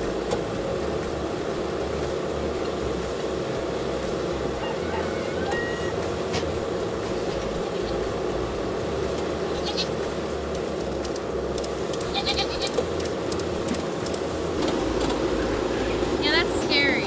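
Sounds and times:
diesel engine idling: 0.0s - 17.0s
goat bleating: 9.5s - 9.9s, 12.0s - 12.8s.

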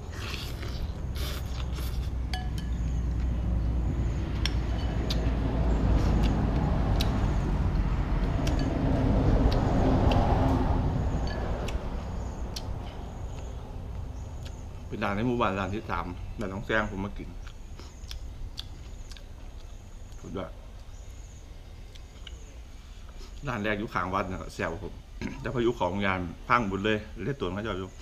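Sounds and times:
chewing: 0.0s - 2.2s, 17.4s - 20.2s
vehicle engine driving past: 0.5s - 16.3s
spoon and chopsticks clinking bowl: 2.3s - 2.9s.

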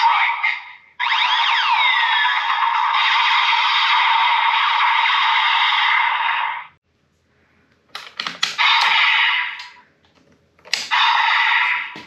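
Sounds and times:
plastic clicks: 7.8s - 8.9s.

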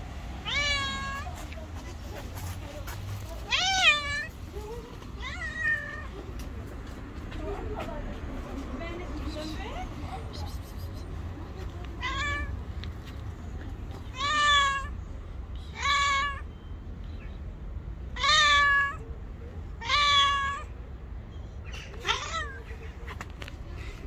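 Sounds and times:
cat meowing: 0.4s - 1.4s, 3.4s - 4.3s, 5.0s - 6.2s, 12.0s - 12.6s, 14.0s - 15.0s, 15.7s - 16.5s, 18.1s - 19.0s, 19.8s - 20.7s, 22.0s - 22.6s.

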